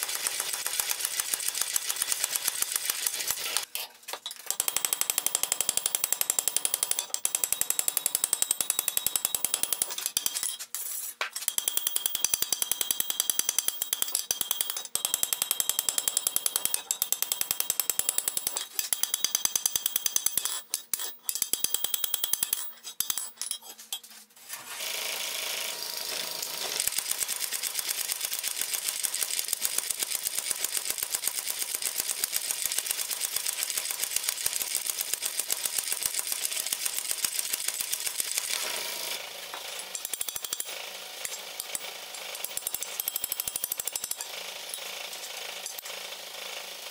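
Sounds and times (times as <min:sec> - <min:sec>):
power hammer pounding: 0:04.5 - 0:10.4
hand hammer ringing on anvil: 0:04.5 - 0:10.6, 0:11.3 - 0:23.7.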